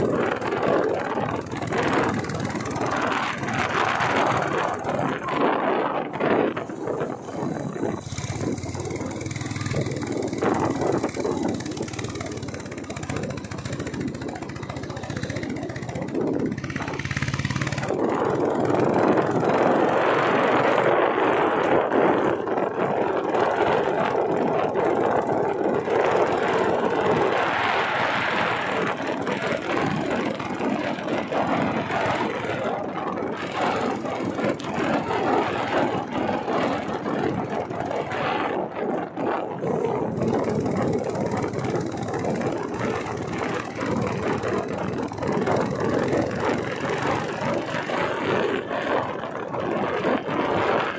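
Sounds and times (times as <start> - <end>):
vehicle engine and road noise: 0.0 - 50.9
wind on microphone: 0.0 - 50.9.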